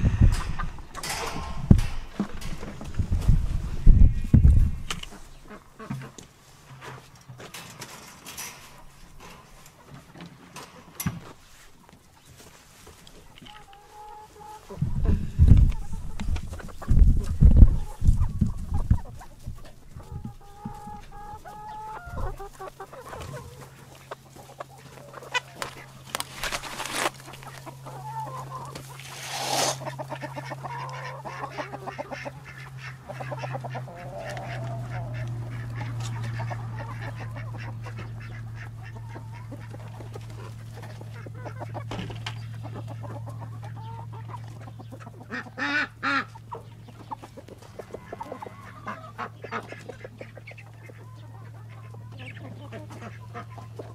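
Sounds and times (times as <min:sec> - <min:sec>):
steady low hum: 0:00.0 - 0:05.7
chickens clucking: 0:00.0 - 0:53.9.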